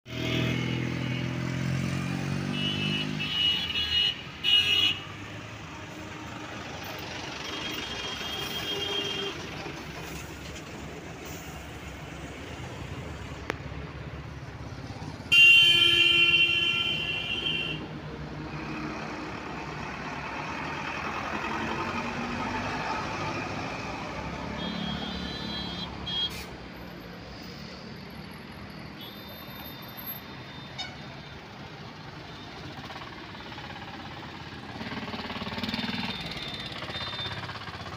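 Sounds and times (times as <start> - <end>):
road traffic engines: 0.0 - 37.9
loud vehicle horn: 0.1 - 6.7, 7.6 - 9.5, 15.3 - 17.9, 24.5 - 26.5.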